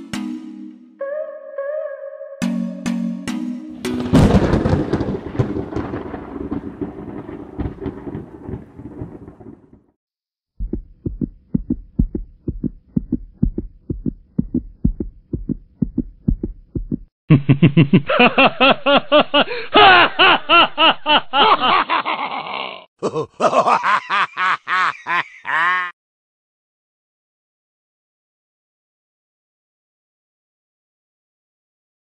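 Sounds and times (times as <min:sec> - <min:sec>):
background music with beat: 0:02.4 - 0:04.1.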